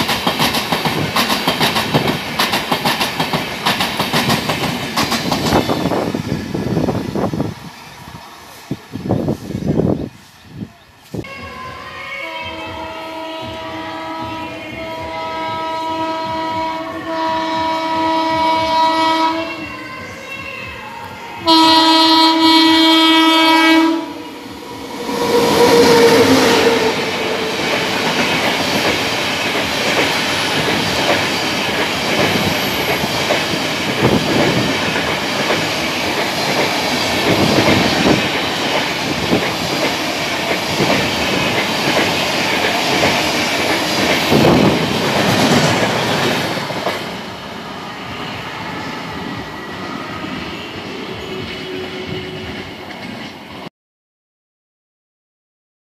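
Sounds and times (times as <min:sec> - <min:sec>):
train wheels clattering over rail joints: 0:00.0 - 0:06.0, 0:27.7 - 0:47.1
rush of passing train coaches: 0:00.0 - 0:53.7
train horn blast: 0:11.3 - 0:28.3.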